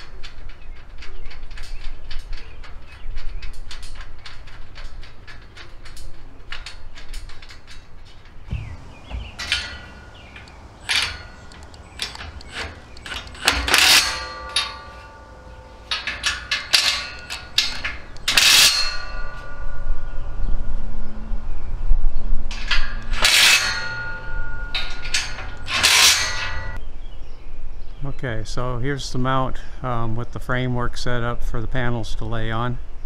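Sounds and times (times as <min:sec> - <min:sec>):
quick metallic clicks: 0:00.0 - 0:19.0
metal clinks and clangs: 0:03.7 - 0:20.2, 0:22.5 - 0:26.8
cordless driver running bolts: 0:08.5 - 0:18.8
steel channel ringing: 0:08.5 - 0:20.8, 0:22.5 - 0:26.8.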